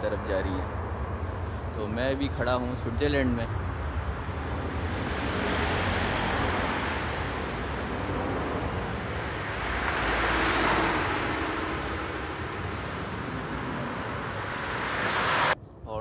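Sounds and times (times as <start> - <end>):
cars passing: 0.0 - 15.6
wind on microphone: 3.6 - 15.6.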